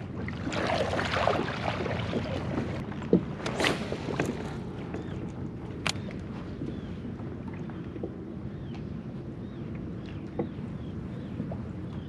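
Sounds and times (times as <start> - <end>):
water splashing around kayak: 0.0 - 8.4.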